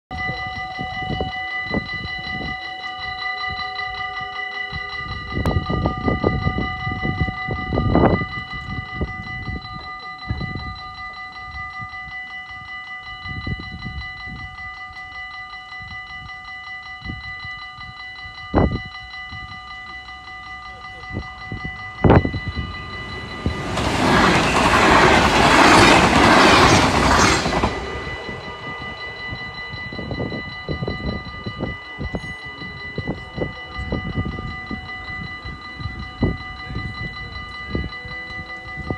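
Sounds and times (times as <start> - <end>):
level crossing bell ringing: 0.2 - 38.9
wind rumbling on microphone: 5.0 - 11.9, 21.1 - 38.9.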